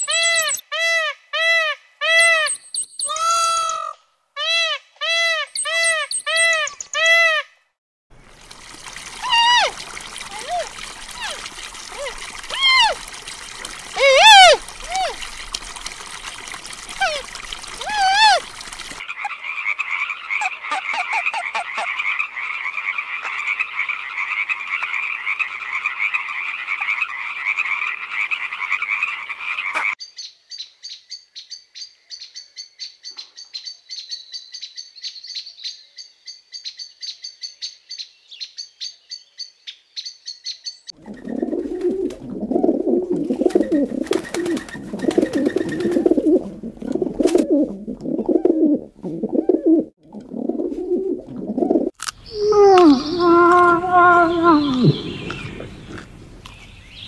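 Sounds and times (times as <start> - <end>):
frog trilling: 3.0 - 4.0, 52.2 - 56.2
pigeons cooing: 41.0 - 56.6.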